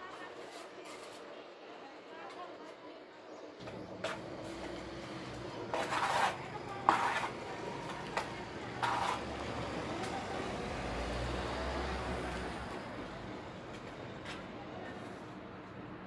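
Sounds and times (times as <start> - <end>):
trowel scraping mortar: 4.0 - 9.6.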